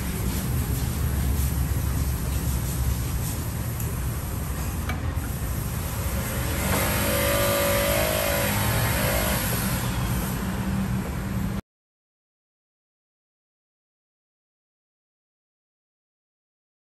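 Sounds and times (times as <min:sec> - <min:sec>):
vehicle engine rumbling: 0:00.0 - 0:11.6
loud whine: 0:05.8 - 0:10.8.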